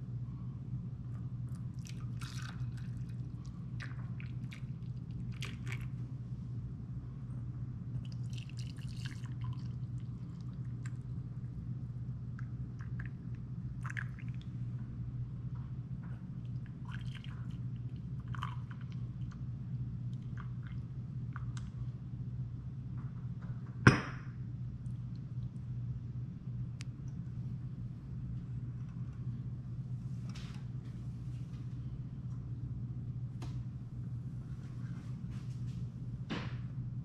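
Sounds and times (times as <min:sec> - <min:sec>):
steady low hum: 0:00.0 - 0:37.0
cream pouring and trickling: 0:01.8 - 0:06.0, 0:08.0 - 0:10.6.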